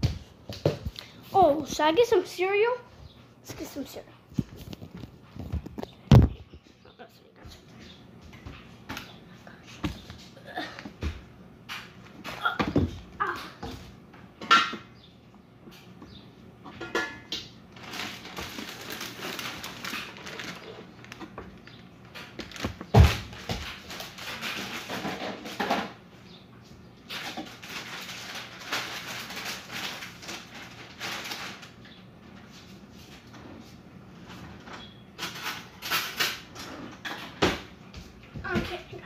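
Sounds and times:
cereal rattling and rustling: 17.8 - 25.2, 27.1 - 31.8.

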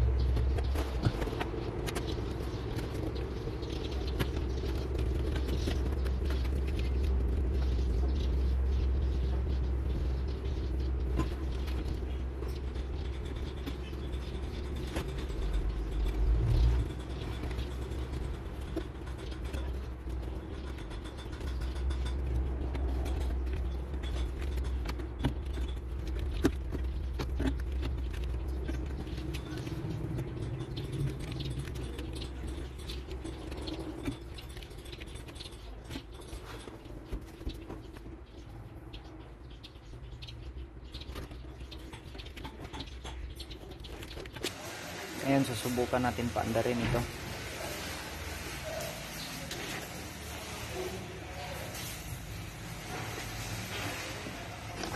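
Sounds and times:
low rumble: 0.0 - 20.5
wires clicking and rustling: 0.0 - 54.9.

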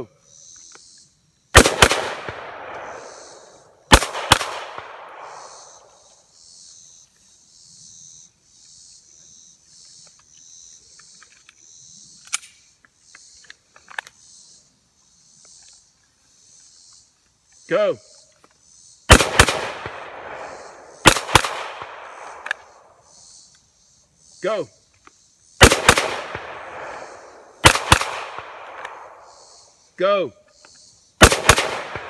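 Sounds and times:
insects chirping: 0.0 - 32.0
pistol shots: 1.6 - 5.9, 19.1 - 22.8, 25.6 - 29.3, 31.2 - 32.0
rifle shots with echo: 1.6 - 5.9, 19.1 - 22.8, 25.6 - 29.3, 31.2 - 32.0.

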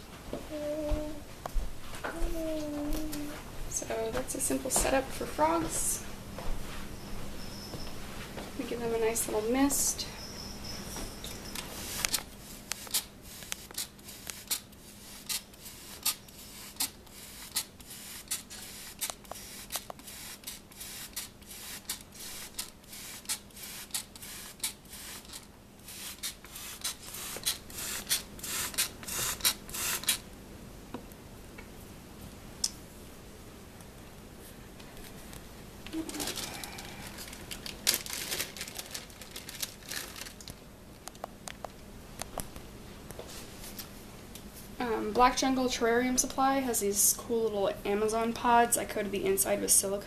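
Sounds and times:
spray bottle misting: 11.7 - 30.2.

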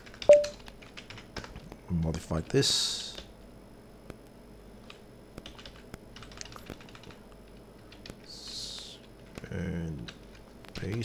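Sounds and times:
keyboard key clicks: 0.2 - 0.6.

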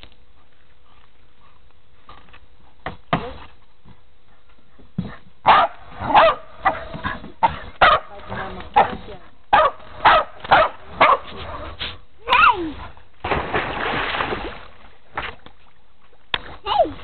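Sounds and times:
dog barking: 5.4 - 8.1, 9.5 - 11.8.

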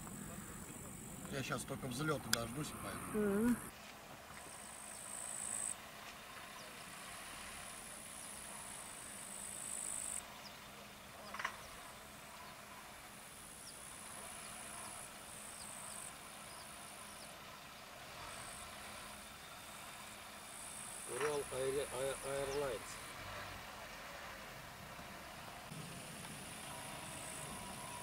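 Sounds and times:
insects chirring: 0.0 - 3.7, 4.5 - 5.8, 7.6 - 10.2, 20.4 - 23.1, 25.7 - 28.0.

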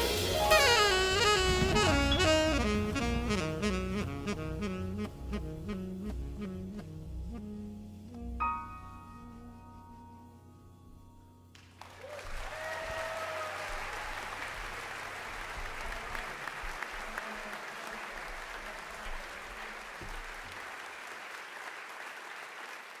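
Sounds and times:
band's last note: 0.0 - 5.4
audience applauding: 11.5 - 23.0
person cheering: 12.0 - 14.3.

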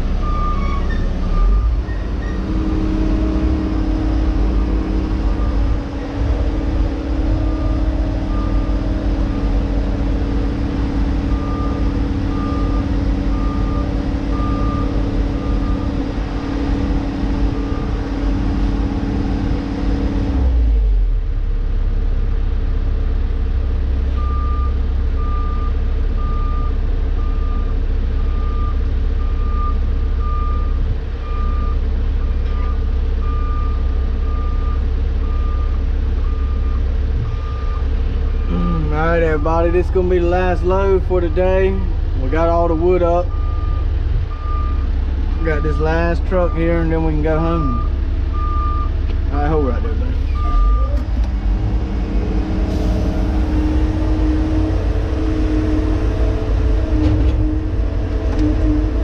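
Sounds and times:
diesel engine running: 0.0 - 59.0
backup alarm beeping: 0.2 - 2.4, 43.2 - 48.9, 50.3 - 51.0.

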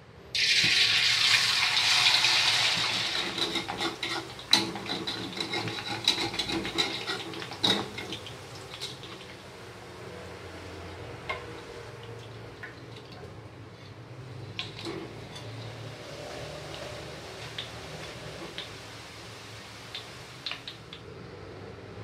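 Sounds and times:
noodles sizzling in hot oil: 0.3 - 12.9, 14.2 - 21.2
metal spatula scraping a wok: 2.4 - 9.1, 14.6 - 18.6.

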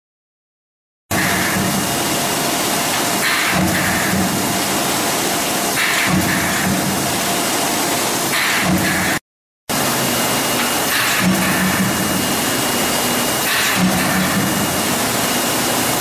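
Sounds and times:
machinery rushing noise: 1.1 - 16.0.

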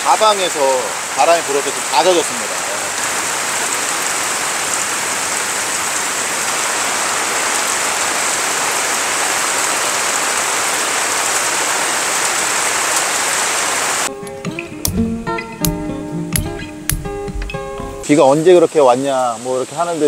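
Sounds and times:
heavy rain falling: 0.0 - 14.1.

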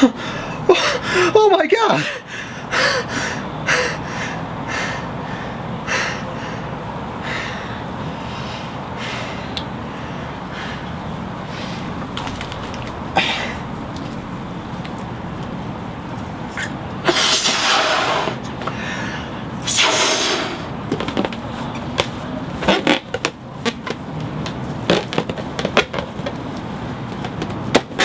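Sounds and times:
balloon squeaks and smacks: 12.0 - 13.1, 22.0 - 24.0, 24.8 - 26.1, 27.4 - 28.0
rubber balloon rubbing: 22.6 - 23.9.

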